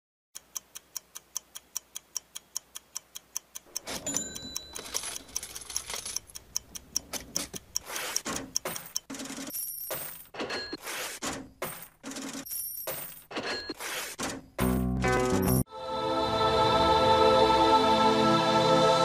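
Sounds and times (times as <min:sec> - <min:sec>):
clock ticking: 0:00.4 - 0:09.6
thin ringing tone: 0:04.0 - 0:04.9.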